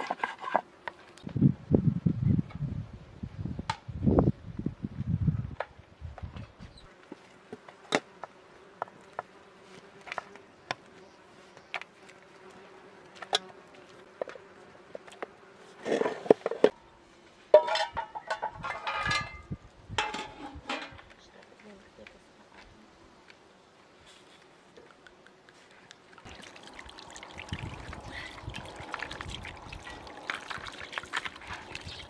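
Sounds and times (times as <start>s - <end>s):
insect buzzing: 6.6s - 17.5s.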